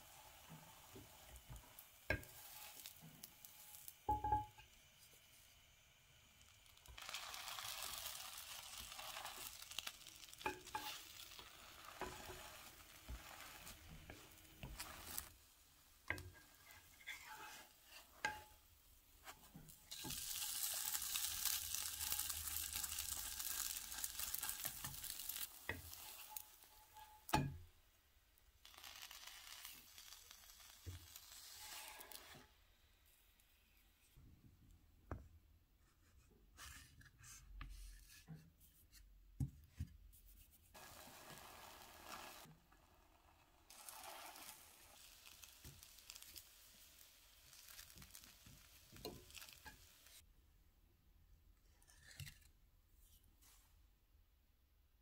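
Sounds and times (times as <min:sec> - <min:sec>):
wooden spatula scraping a pan: 0:00.0 - 0:05.2, 0:07.0 - 0:27.6, 0:28.8 - 0:32.6, 0:35.9 - 0:39.1, 0:47.5 - 0:50.2
bread sizzling in a pan: 0:00.0 - 0:33.7, 0:40.7 - 0:50.2.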